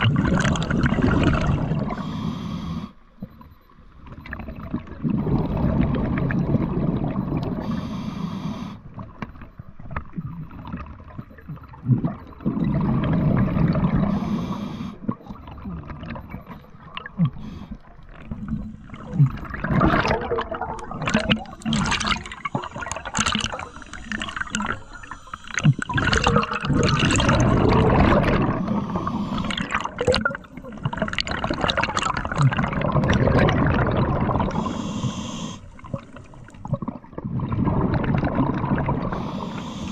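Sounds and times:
gurgling exhaust bubbles: 0.0s - 2.0s, 4.2s - 7.6s, 10.5s - 14.1s, 18.2s - 28.7s, 29.4s - 34.7s, 35.9s - 39.2s
regulator inhale hiss: 1.9s - 3.0s, 7.6s - 8.8s, 14.1s - 15.0s, 22.3s - 25.9s, 28.6s - 29.8s, 34.5s - 36.6s, 39.1s - 39.9s.

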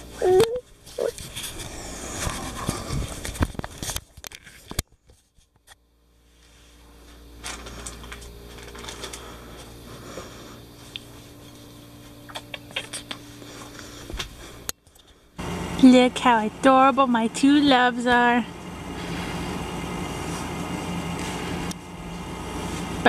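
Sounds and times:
steady low hum: 0.0s - 4.8s, 5.6s - 23.0s
small clicks and rustles: 0.8s - 5.8s, 7.4s - 9.7s.

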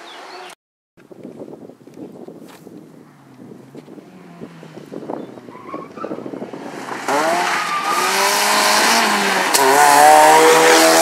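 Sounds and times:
faint wind noise: 1.0s - 11.0s
rally car engine revving: 3.0s - 11.0s.

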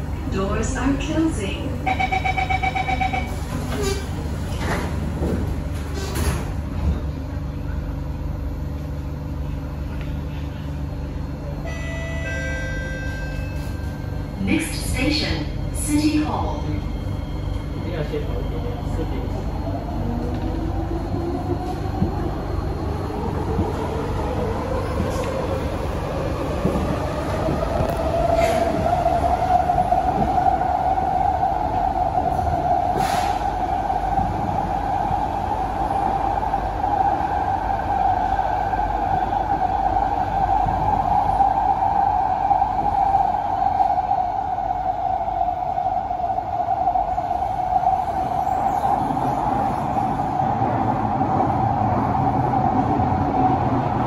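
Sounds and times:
wheels rumbling on rail: 0.0s - 54.0s.

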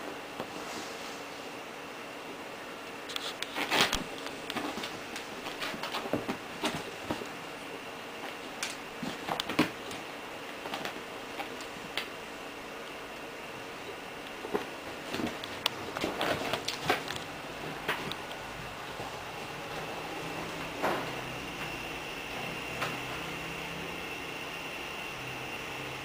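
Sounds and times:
steady hiss: 0.0s - 26.0s
kitten scratching on chair: 3.2s - 7.4s.

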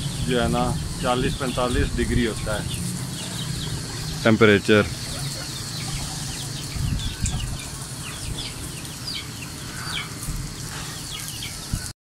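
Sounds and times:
wind rumble on microphone: 0.0s - 3.8s, 6.4s - 8.8s, 11.3s - 11.9s
birds chirping: 0.0s - 11.9s.

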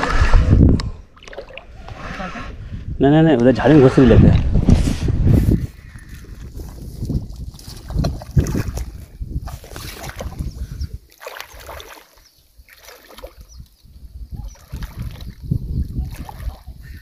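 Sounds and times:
water sloshing and splashing: 0.0s - 2.3s, 6.1s - 17.0s
wind buffeting microphone: 0.0s - 11.8s, 13.2s - 17.0s.

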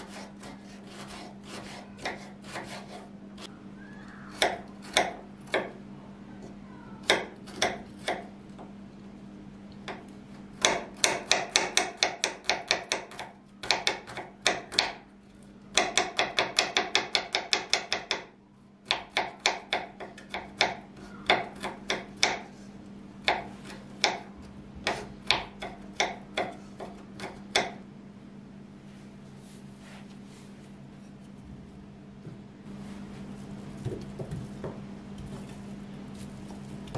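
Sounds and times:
knife chopping on wooden board: 0.0s - 3.0s, 4.4s - 5.8s, 9.9s - 15.0s, 18.9s - 22.5s, 23.2s - 27.8s.

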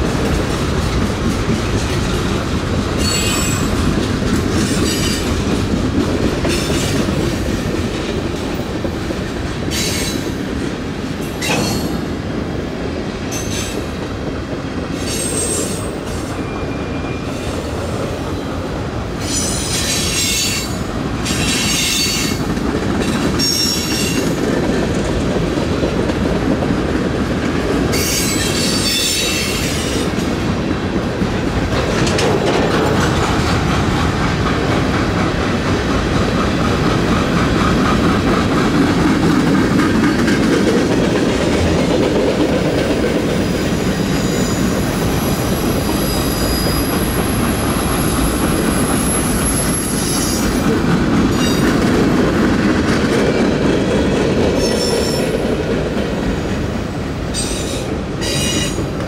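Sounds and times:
train wheels rumbling on rail: 0.0s - 59.0s.

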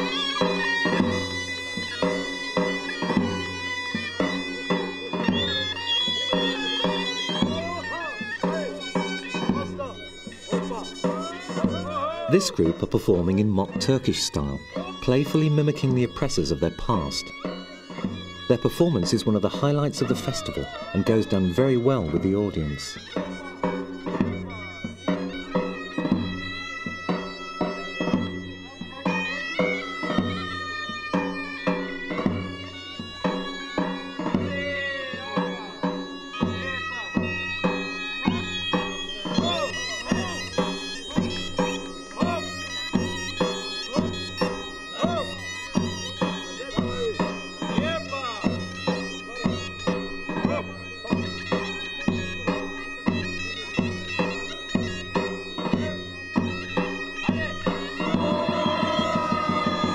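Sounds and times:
shrill reed pipes melody: 0.0s - 59.9s
large drum beating: 58.0s - 59.9s.

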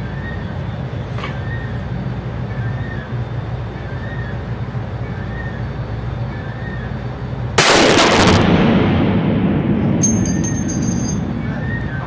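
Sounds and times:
steady background hum: 0.0s - 12.0s
rifle shot echoing indoors: 7.6s - 10.0s.

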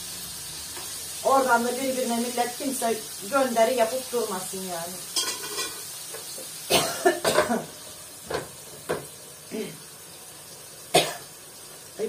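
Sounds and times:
woman coughing: 6.7s - 7.7s, 11.0s - 11.2s.

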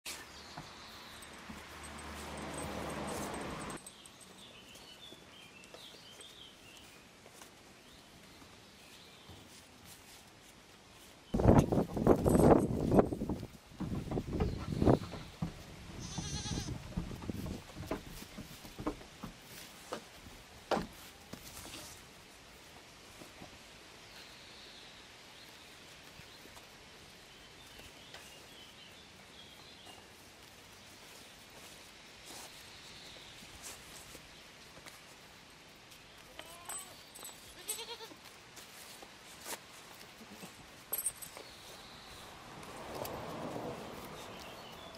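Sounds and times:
faint outdoor background noise: 0.0s - 44.9s
birds chirping: 0.1s - 7.1s, 14.0s - 15.6s, 40.5s - 44.9s
light ticks and rustles: 0.1s - 44.9s.

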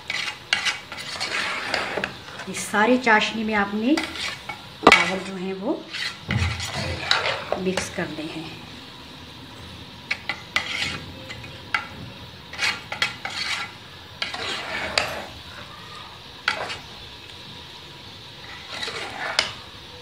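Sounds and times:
metal spoon scraping a pot: 0.0s - 8.0s, 10.1s - 11.9s, 12.5s - 15.7s, 16.4s - 17.0s, 18.4s - 19.7s
low steady hiss: 0.0s - 20.0s.

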